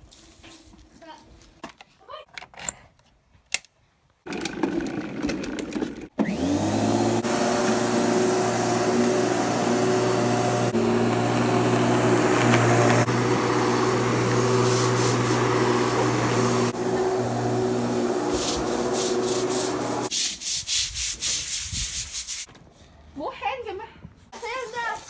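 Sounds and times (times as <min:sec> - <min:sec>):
electric lawnmower motor running: 0:06.2 - 0:20.1.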